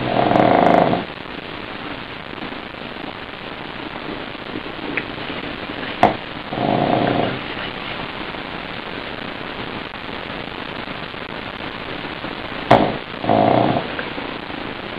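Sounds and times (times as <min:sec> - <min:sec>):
dog snoring: 0:00.0 - 0:01.1, 0:06.5 - 0:07.4, 0:12.7 - 0:14.0
steady hiss: 0:00.0 - 0:14.9.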